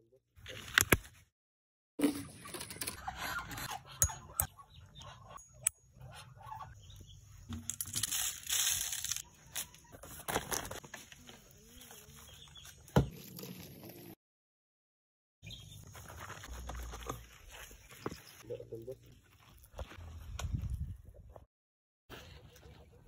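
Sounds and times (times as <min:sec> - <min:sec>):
plastic rustling: 0:07.7 - 0:09.3.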